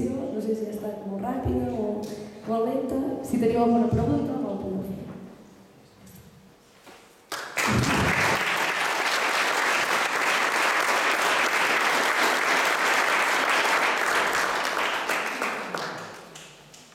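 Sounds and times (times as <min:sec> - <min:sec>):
audience applauding: 0:07.3 - 0:16.9.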